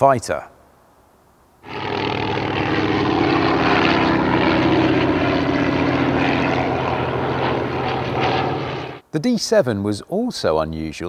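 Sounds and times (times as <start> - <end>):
propeller plane engine drone: 1.6 - 9.0.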